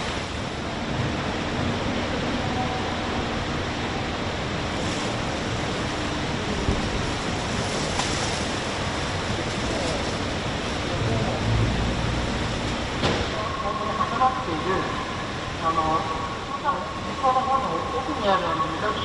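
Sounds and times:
rushing machinery and air: 3.0s - 17.4s.

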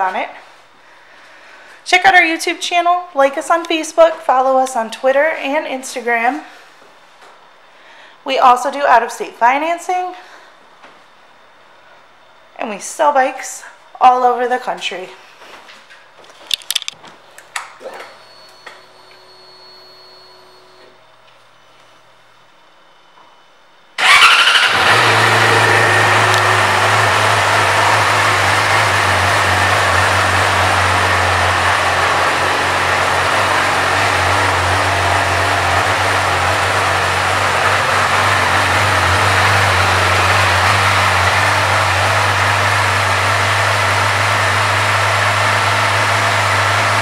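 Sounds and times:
motorcycle engine starting and idling: 24.0s - 47.0s.

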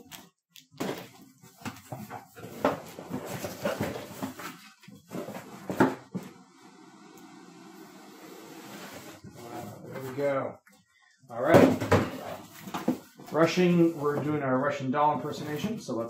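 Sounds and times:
cardboard boxes rustling and scraping: 0.8s - 6.5s, 8.6s - 10.3s, 11.6s - 14.5s.

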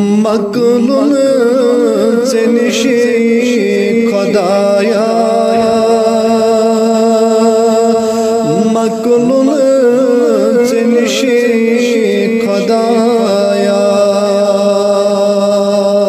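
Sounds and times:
chant-like devotional singing: 0.0s - 16.0s
steady drone: 4.8s - 9.5s.

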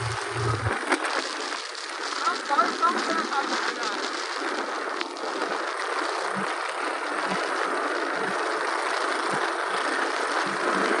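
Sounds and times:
low buffeting thumps: 0.0s - 0.8s
wind and road noise: 0.0s - 1.0s.

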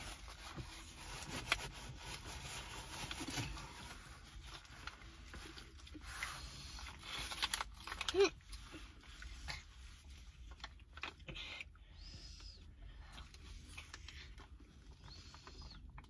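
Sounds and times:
plastic pouch crinkling: 1.4s - 8.6s.

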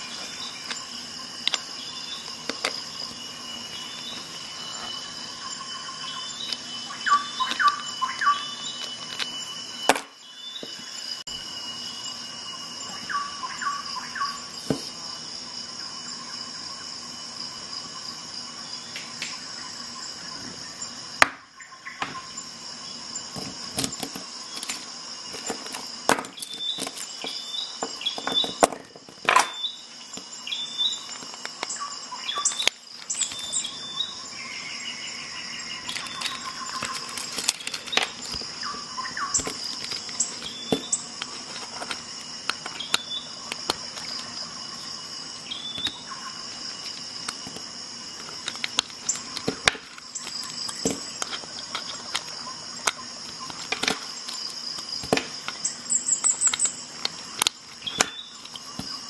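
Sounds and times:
high-pitched insect chorus: 0.0s - 59.0s.

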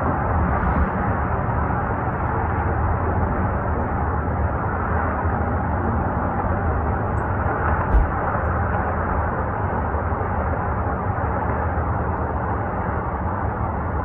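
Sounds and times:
distant helicopters rumbling: 0.0s - 14.0s.

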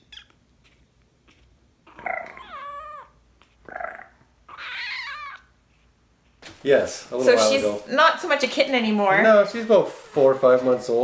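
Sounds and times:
kitten meowing: 1.9s - 3.2s, 4.5s - 5.5s.

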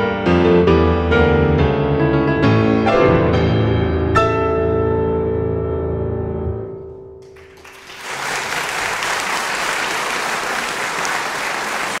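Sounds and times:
grand piano chord: 0.0s - 7.4s
audience applause: 7.2s - 12.0s.

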